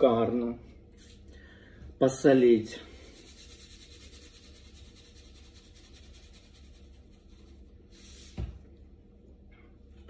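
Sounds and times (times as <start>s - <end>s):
salt shaker rattling: 3.1s - 7.5s.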